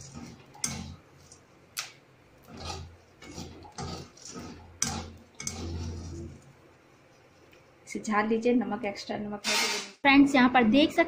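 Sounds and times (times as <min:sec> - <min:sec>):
metal spatula scraping hot salt: 0:00.0 - 0:01.0, 0:02.4 - 0:06.4.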